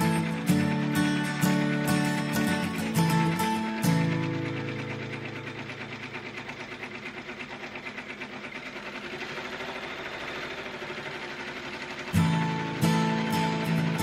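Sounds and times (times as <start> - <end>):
embroidery machine rattling: 0.0 - 14.0.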